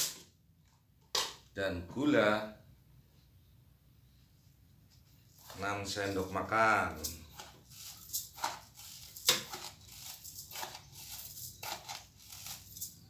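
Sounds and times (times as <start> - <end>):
plastic bag crinkling: 5.4 - 13.0
sugar pouring: 5.4 - 13.0.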